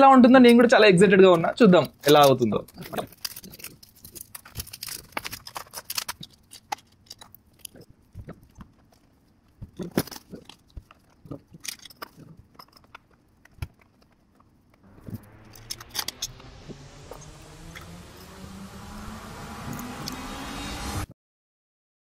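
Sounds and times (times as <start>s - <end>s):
hiss with rising low tone: 14.9s - 21.1s.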